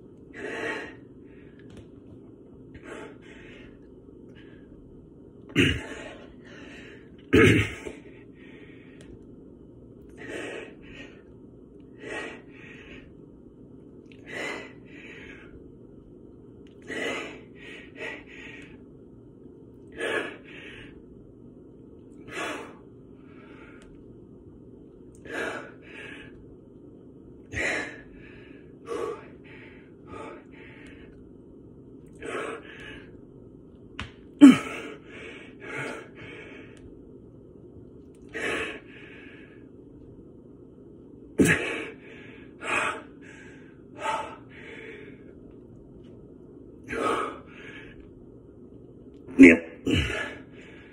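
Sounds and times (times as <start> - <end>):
steady low hum: 0.0 - 50.9
man breathing hard: 0.3 - 1.8, 2.7 - 4.7, 5.7 - 9.2, 10.1 - 11.3, 11.9 - 13.2, 14.2 - 15.6, 16.8 - 18.8, 19.9 - 21.0, 22.2 - 24.0, 25.2 - 26.4, 27.5 - 31.2, 32.2 - 33.2, 34.4 - 36.9, 38.3 - 39.7, 41.4 - 45.4, 46.8 - 48.1, 49.8 - 50.9.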